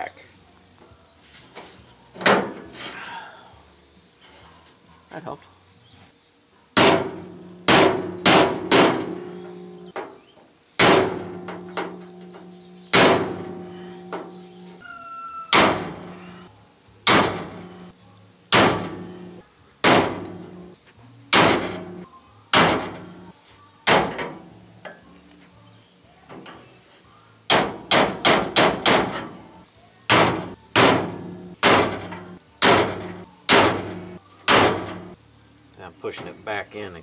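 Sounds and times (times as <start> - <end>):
hammer striking metal bar: 6.8 - 9.4, 10.8 - 14.3, 15.5 - 16.2, 17.1 - 17.6, 30.1 - 35.2.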